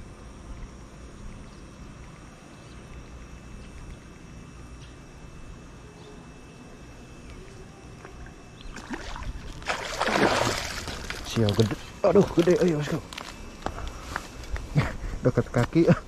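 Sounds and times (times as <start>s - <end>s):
fish splashing at water surface: 8.7s - 11.8s.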